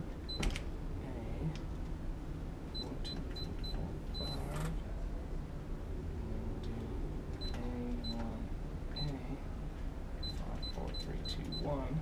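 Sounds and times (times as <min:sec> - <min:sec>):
keypad lock beeping: 0:02.8 - 0:04.5, 0:10.2 - 0:11.8.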